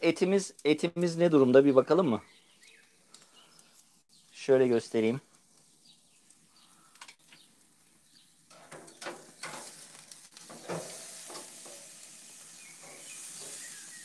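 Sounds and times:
steak sizzling on grill: 0:08.3 - 0:14.0
tongs scraping on grill grate: 0:08.4 - 0:14.0.

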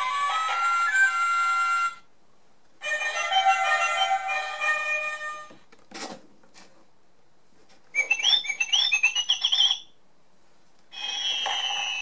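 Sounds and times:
electronic bird chirps: 0:08.0 - 0:09.9, 0:11.0 - 0:12.0.

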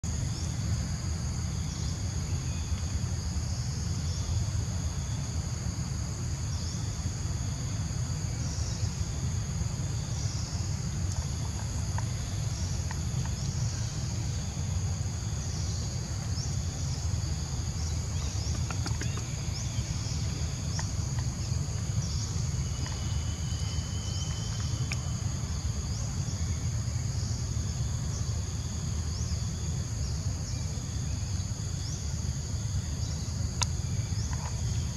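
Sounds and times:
high-pitched insect chorus: 0:00.0 - 0:34.9
short insect chirps: 0:06.2 - 0:34.9.

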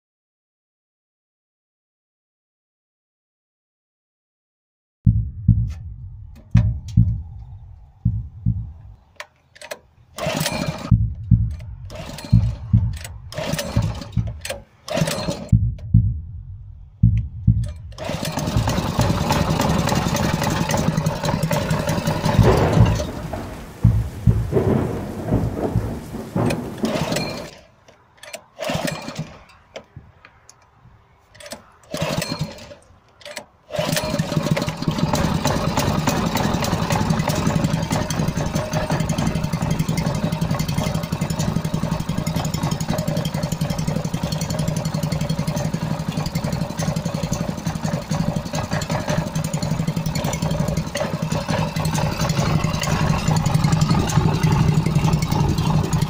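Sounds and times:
stationary engine running roughly: 0:10.2 - 0:15.6, 0:17.0 - 0:27.5, 0:33.7 - 0:56.0.

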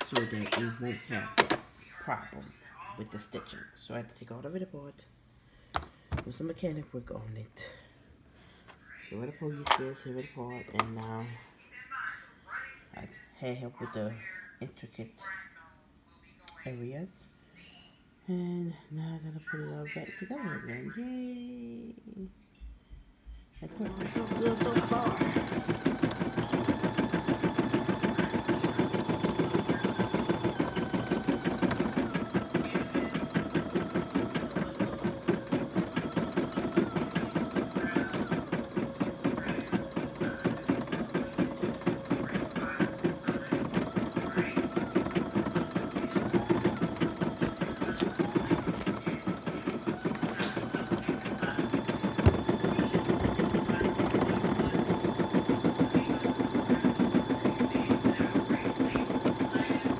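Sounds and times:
embroidery machine stitching: 0:00.0 - 0:01.6, 0:23.6 - 0:59.9.

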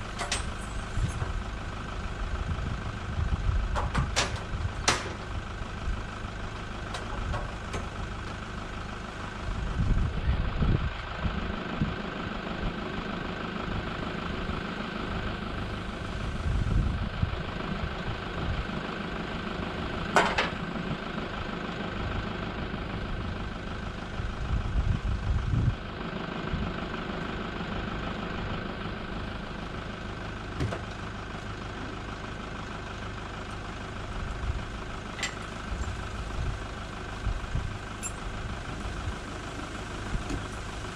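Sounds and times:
engine idling drone: 0:00.0 - 0:40.9
wind buffeting microphone: 0:02.3 - 0:05.5, 0:09.6 - 0:12.0, 0:16.2 - 0:18.7, 0:24.5 - 0:25.8.

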